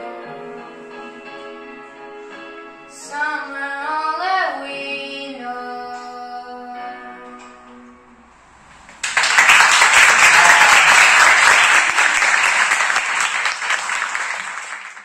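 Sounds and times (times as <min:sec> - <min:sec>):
audience applause: 0:09.0 - 0:15.0.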